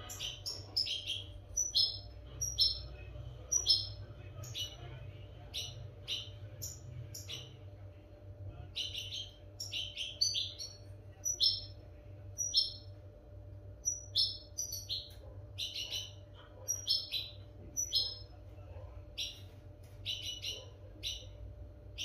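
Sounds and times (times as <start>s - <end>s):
goldfinch chirping: 0.0s - 4.8s, 5.5s - 7.6s, 8.8s - 11.8s, 12.4s - 12.9s, 13.8s - 18.2s, 20.0s - 21.4s.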